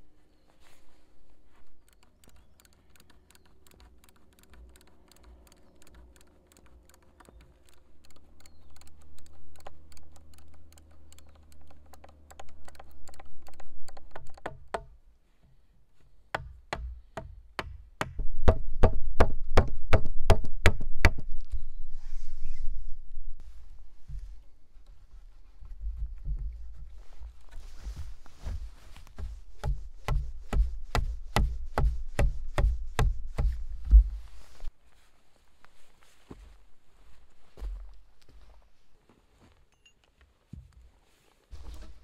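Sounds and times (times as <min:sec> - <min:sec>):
wooden mallet knocking wood: 0:16.3 - 0:21.2, 0:29.2 - 0:34.2.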